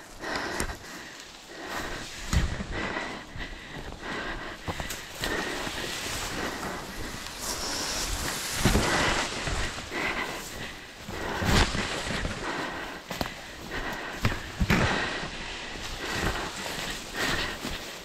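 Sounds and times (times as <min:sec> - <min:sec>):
footsteps in grass: 0:00.0 - 0:18.0
grass swishing against microphone: 0:05.2 - 0:12.9.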